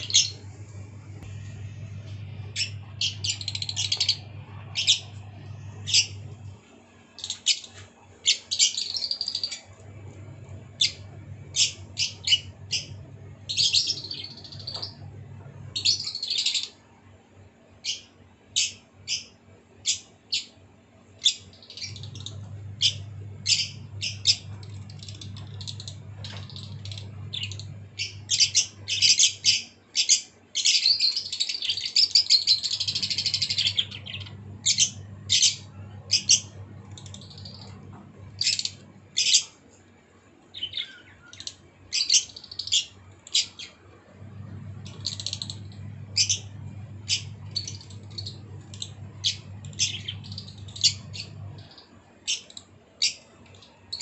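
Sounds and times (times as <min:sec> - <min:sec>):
low hum: 0:00.0 - 0:07.5, 0:09.4 - 0:16.5, 0:21.8 - 0:29.0, 0:32.5 - 0:39.4, 0:43.7 - 0:51.9
lovebirds chirping: 0:00.0 - 0:16.8, 0:21.2 - 0:39.6, 0:40.5 - 0:54.0.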